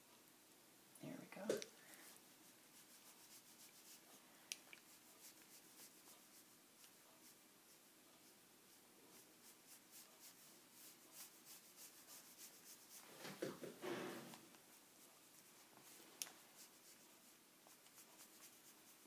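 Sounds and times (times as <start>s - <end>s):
ink brush strokes on paper: 1.3s - 19.0s.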